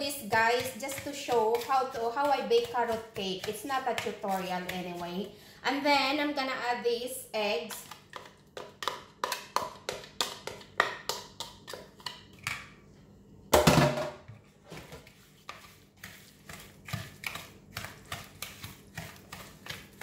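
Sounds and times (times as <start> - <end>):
spatula stirring and scraping in bowl: 0.0 - 6.4, 7.4 - 12.7, 14.4 - 20.0
spatula tapping against bowl: 0.2 - 5.1.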